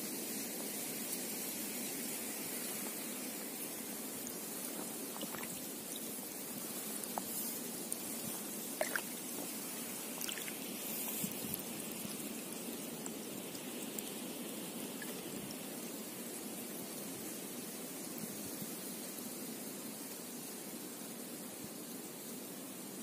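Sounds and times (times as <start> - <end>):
river water trickling and lapping: 0.4 - 18.3
water drips and splashes: 1.0 - 17.4.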